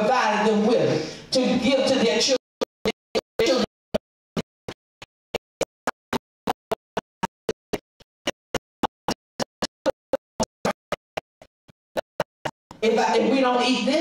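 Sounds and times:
woman speaking into a microphone: 0:00.0 - 0:02.4, 0:12.8 - 0:14.0.

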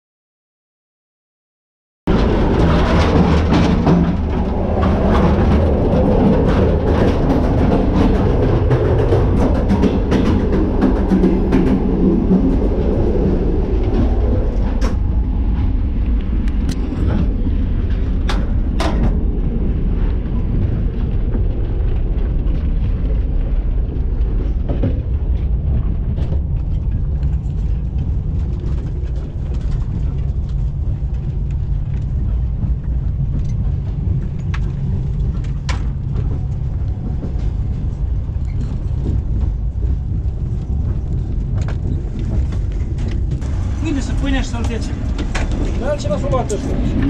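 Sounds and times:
moving train rumble: 0:02.1 - 0:47.0.

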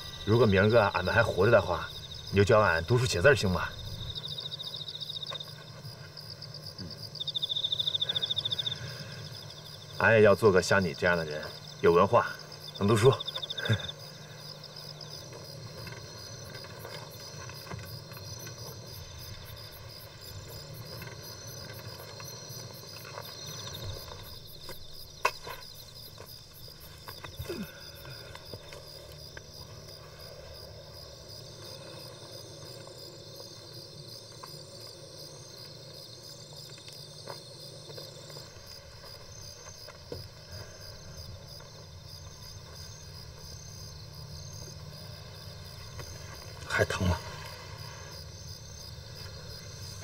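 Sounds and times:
crickets chirping: 0:00.0 - 0:50.0
footfalls on dry soil: 0:14.8 - 0:46.8.

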